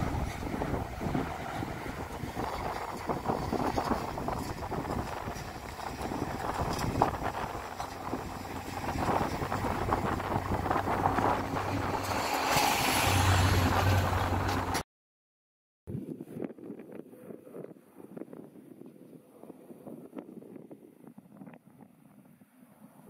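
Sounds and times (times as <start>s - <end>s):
distant jet engines rumbling: 0.0s - 14.8s
wind buffeting microphone: 0.0s - 14.8s, 15.9s - 23.0s.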